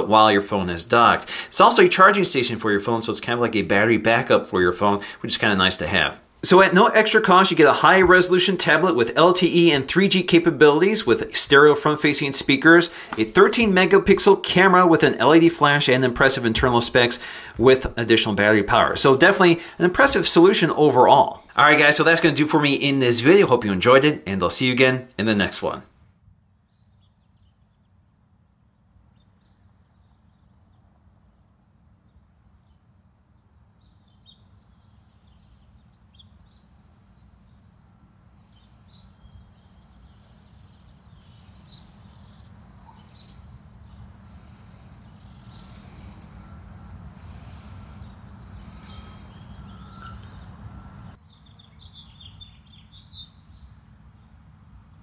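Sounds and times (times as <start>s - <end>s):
small birds chirping: 26.5s - 55.0s
low steady rumble: 29.9s - 55.0s.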